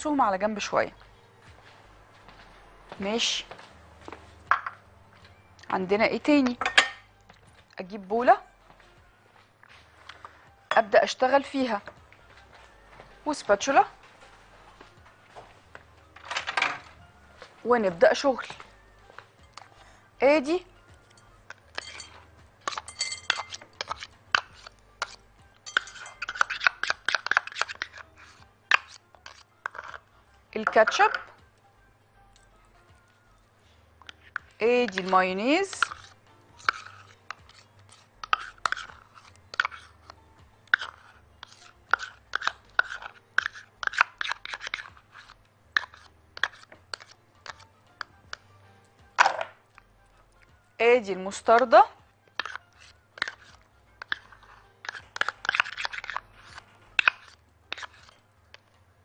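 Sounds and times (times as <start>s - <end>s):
spoon scraping glass bowl: 21.0s - 31.3s, 34.0s - 47.7s, 51.4s - 58.7s
ringing clink: 22.9s - 23.4s
spoon taps: 25.7s - 28.0s.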